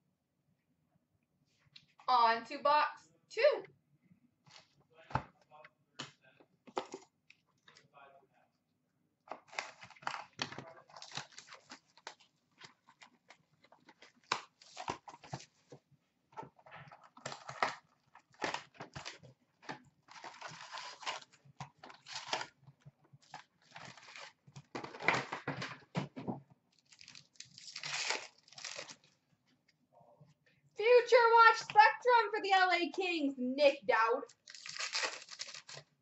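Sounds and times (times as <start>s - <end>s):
card packs crinkling: 9.3s - 15.8s, 16.5s - 22.6s, 23.2s - 25.6s, 26.8s - 29.2s, 34.3s - 36.0s
cardboard lid tearing and scraping: 20.1s - 22.6s, 27.0s - 29.0s.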